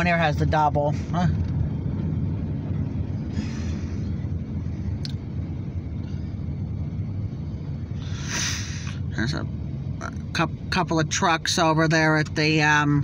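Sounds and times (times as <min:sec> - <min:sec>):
car road rumble: 0:00.0 - 0:13.0
short hiss: 0:08.0 - 0:09.0.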